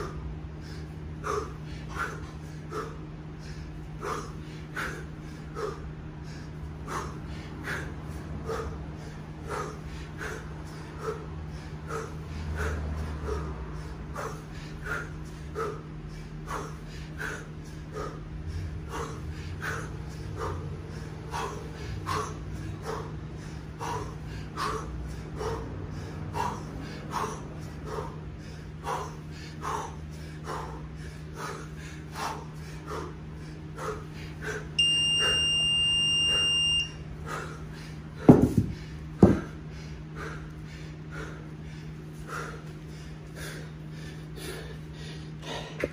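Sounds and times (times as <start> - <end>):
hard rhythmic breathing: 0.0 - 45.9
electronic beep: 34.8 - 37.0
kettlebell thudding on turf: 38.2 - 39.5.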